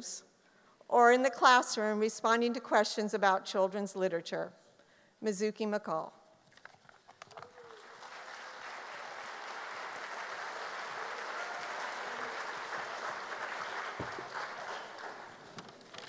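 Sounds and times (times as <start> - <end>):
large audience applauding: 7.2 - 15.9.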